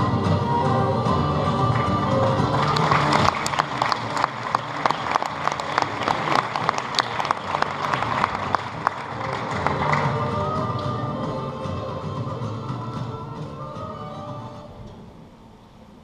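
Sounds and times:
show music: 0.0 - 15.2
audience applauding: 1.6 - 10.6.

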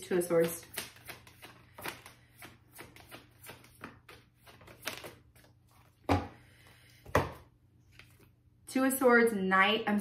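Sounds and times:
cards being shuffled: 0.4 - 6.0.

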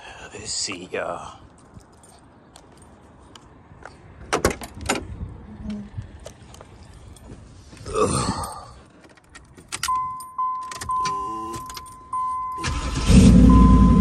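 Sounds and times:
keys jangling: 8.4 - 12.6
car engine cranking and starting: 9.0 - 14.0
car warning chime beeping: 9.8 - 14.0.

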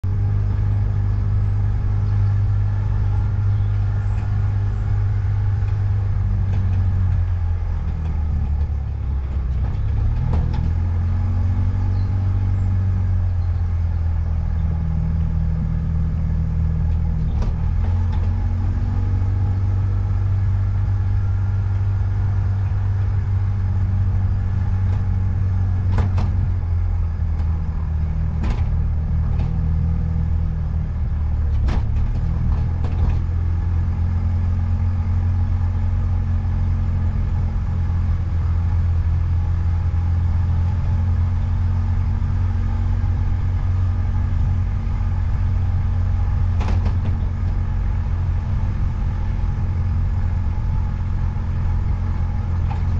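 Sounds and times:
car driving drone: 0.0 - 52.9
sharp knocks: 46.6 - 47.2.

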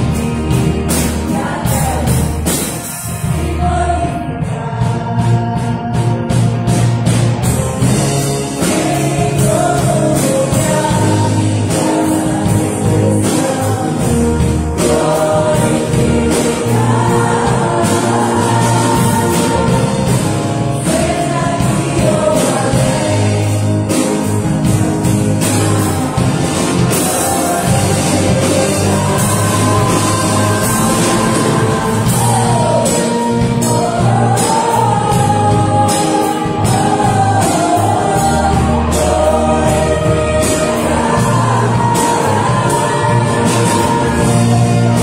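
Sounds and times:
women singing together: 0.0 - 6.4, 8.5 - 45.0
gospel band playing: 0.0 - 45.0.

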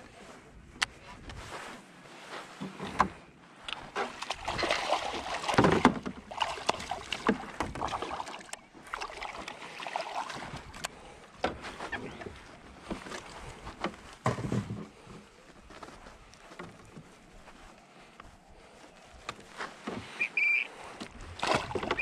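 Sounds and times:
water sloshing against boat hull: 2.5 - 15.6, 19.1 - 22.0
fish thrashing and splashing: 3.9 - 10.8, 21.2 - 22.0.

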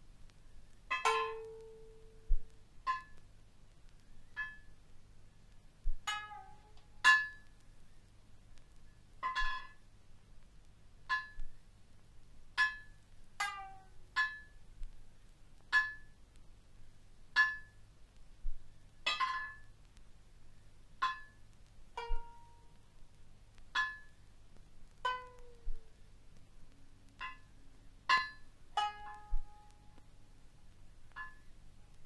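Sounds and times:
plucked lute notes: 0.9 - 3.2, 4.3 - 4.8, 5.8 - 7.6, 9.2 - 9.9, 11.1 - 11.6, 12.5 - 14.6, 15.6 - 16.2, 17.3 - 17.8, 18.5 - 19.8, 21.0 - 22.8, 23.7 - 24.2, 25.0 - 25.9, 26.7 - 30.3, 31.1 - 32.0.

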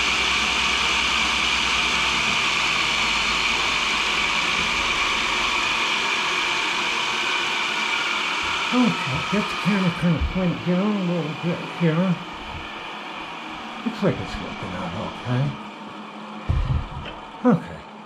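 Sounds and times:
grinder wheel whirring: 0.0 - 17.4
low hum: 8.4 - 18.0.

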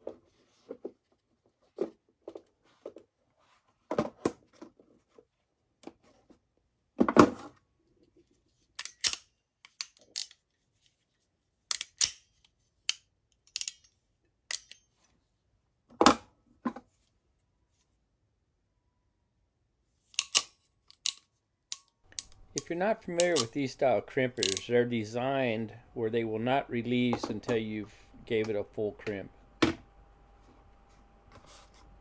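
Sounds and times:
crimping pliers ratchet clicking: 8.8 - 10.4, 11.7 - 12.3, 12.9 - 13.9, 14.5 - 14.8, 20.1 - 23.8, 24.4 - 24.8.

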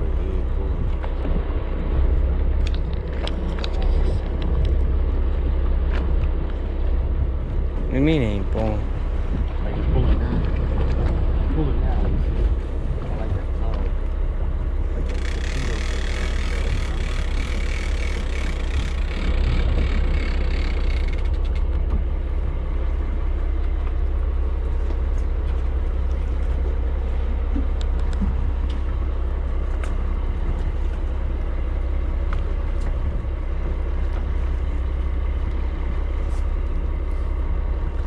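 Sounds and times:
wind on microphone: 0.0 - 22.1
boat engine rumble: 0.0 - 38.0.

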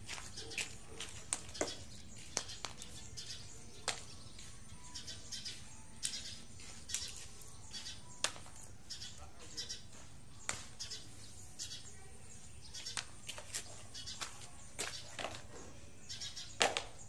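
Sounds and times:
plastic toys clicking on dirt: 0.1 - 4.5, 6.9 - 8.8, 12.8 - 15.7, 16.5 - 17.0.

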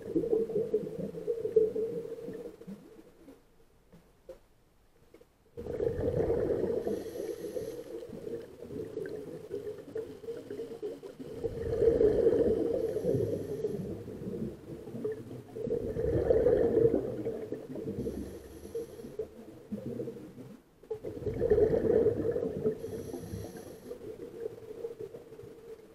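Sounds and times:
diver exhaling bubbles: 5.6 - 18.8, 21.0 - 24.5.

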